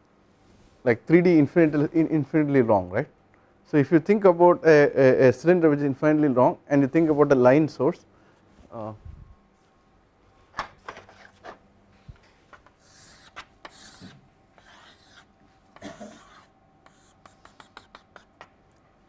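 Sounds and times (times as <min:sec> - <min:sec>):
chalk tapping on blackboard: 0:12.8 - 0:15.2, 0:16.1 - 0:18.6
chalk scratching on blackboard: 0:12.8 - 0:15.3, 0:15.9 - 0:18.5.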